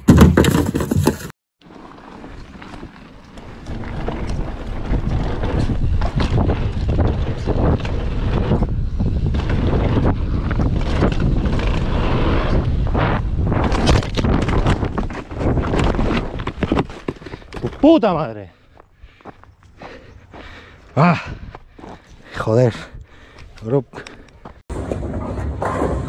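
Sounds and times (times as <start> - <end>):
bike crashing on dirt: 0.0 - 18.0
bike rattling over rough ground: 0.0 - 18.3
wind on camera microphone: 3.9 - 16.4.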